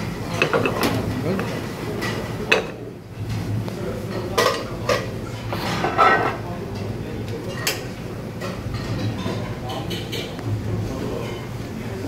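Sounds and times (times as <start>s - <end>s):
utensil scraping frying pan: 5.5s - 6.4s.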